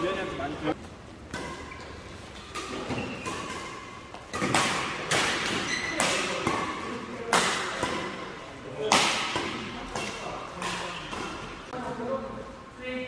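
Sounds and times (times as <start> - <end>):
badminton racket hitting shuttlecock: 1.3 - 11.7.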